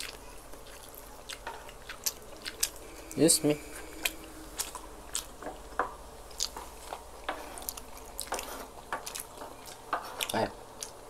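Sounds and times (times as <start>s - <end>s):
people chewing and mouth smacks: 0.0s - 3.1s, 3.7s - 11.0s.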